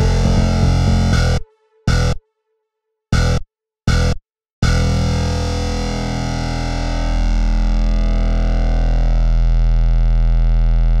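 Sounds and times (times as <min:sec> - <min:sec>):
rock band sustained chord: 0:00.0 - 0:02.1
low bass note: 0:00.0 - 0:02.2, 0:03.2 - 0:11.0.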